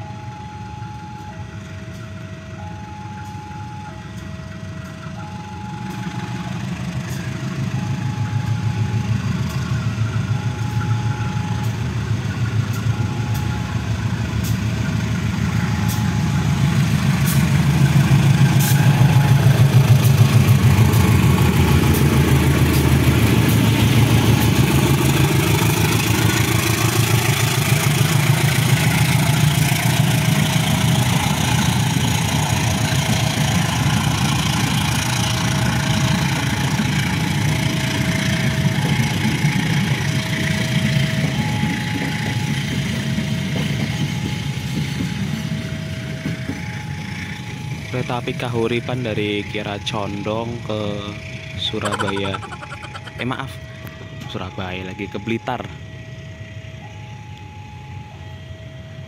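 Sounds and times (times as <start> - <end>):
locomotive engine rumble: 0.0 - 54.4
train coaches rolling by: 0.0 - 59.0
two-tone electronic warning signal: 7.7 - 12.0, 12.6 - 14.6, 15.4 - 17.4, 48.5 - 55.8.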